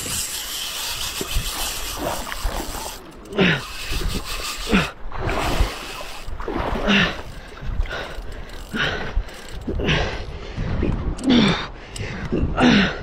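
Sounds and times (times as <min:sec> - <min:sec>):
water rushing and swirling: 0:00.0 - 0:08.4
wind on microphone: 0:03.6 - 0:12.7.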